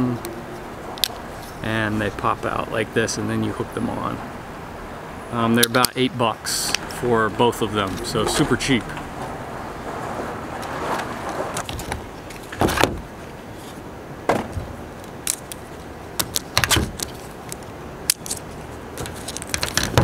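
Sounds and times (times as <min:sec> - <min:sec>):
plastic clicks and rattles: 0:16.2 - 0:20.0.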